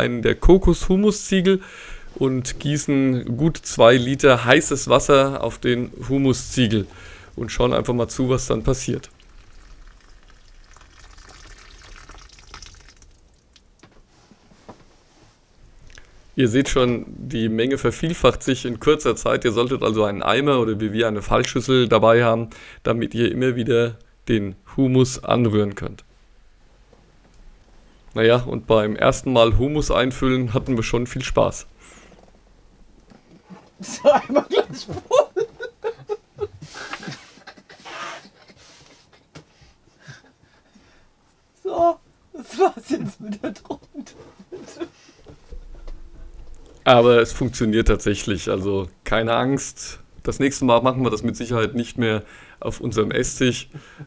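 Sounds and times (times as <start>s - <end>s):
hot water pouring from kettle: 8.5s - 13.6s
small water drips: 9.0s - 13.9s
breathy panting laughter: 33.8s - 40.8s, 43.2s - 45.2s.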